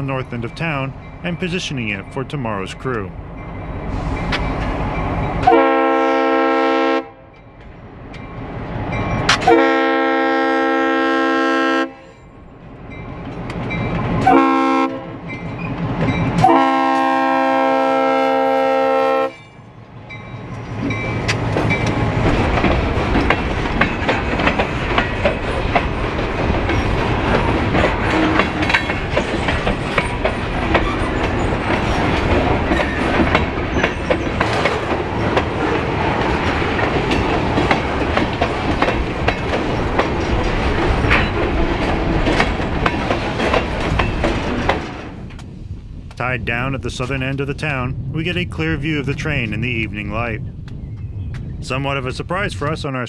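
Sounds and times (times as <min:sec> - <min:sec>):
freight train rumbling past: 0:00.0 - 0:53.0
wheels clacking over rail joints: 0:20.1 - 0:45.6.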